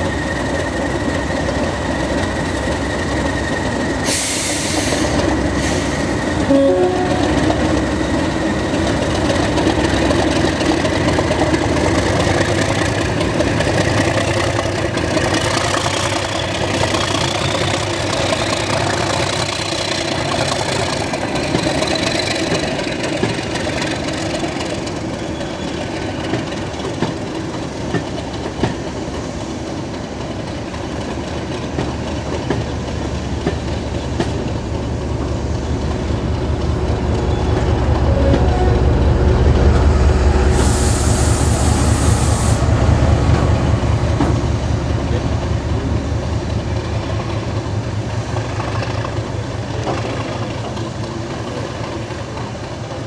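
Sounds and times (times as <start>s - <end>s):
diesel locomotive engine rumble: 0.0s - 53.0s
train wheels clicking over rail joints: 7.4s - 38.5s, 43.2s - 53.0s
brief high hiss: 40.5s - 42.7s.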